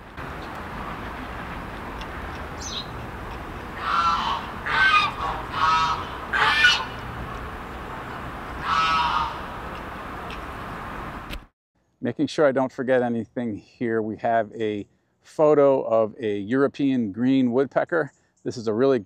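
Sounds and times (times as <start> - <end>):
low outdoor rumble: 0.0 - 11.5
geese honking: 0.2 - 10.4.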